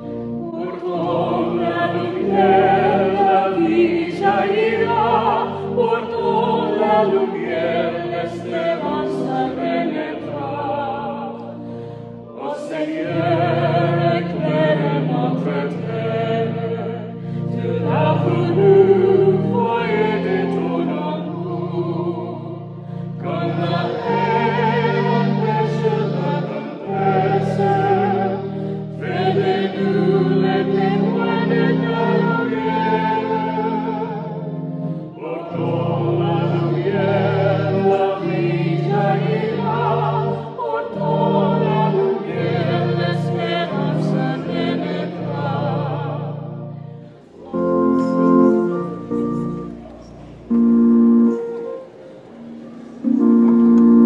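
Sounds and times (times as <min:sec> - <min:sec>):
accompaniment chords: 0:00.0 - 0:54.0
congregation singing a hymn: 0:00.0 - 0:54.0.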